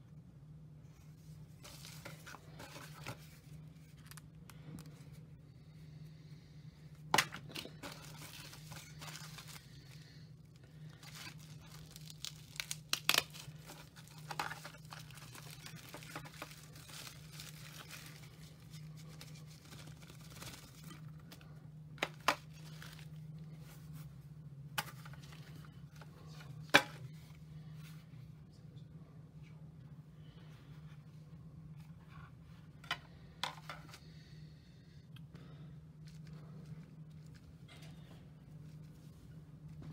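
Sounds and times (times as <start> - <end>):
bubble wrap crinkling and tearing: 7.1 - 21.3.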